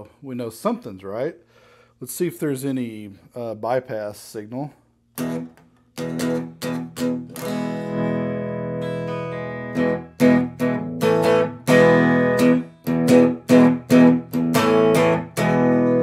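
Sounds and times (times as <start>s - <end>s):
electric guitar strumming: 5.2s - 16.0s.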